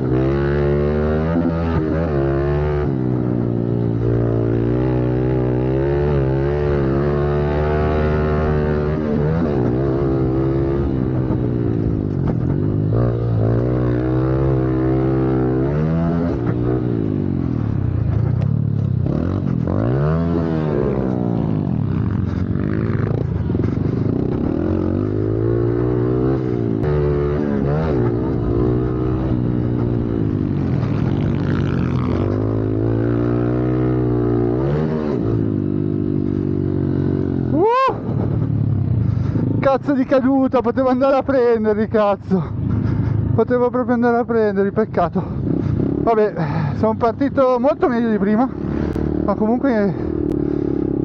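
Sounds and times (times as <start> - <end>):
motorbike engine revving: 0.0 - 40.2, 42.3 - 51.0.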